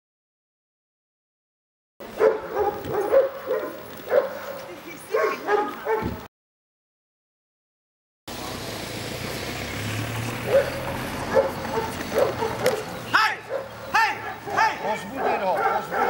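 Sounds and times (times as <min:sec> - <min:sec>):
dog barking: 0:02.1 - 0:06.2, 0:10.4 - 0:16.0.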